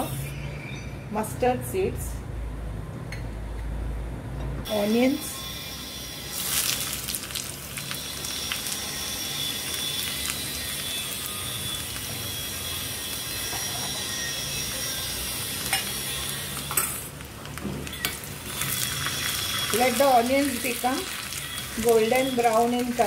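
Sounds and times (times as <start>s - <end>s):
onions sizzling in oil: 5.9s - 23.0s.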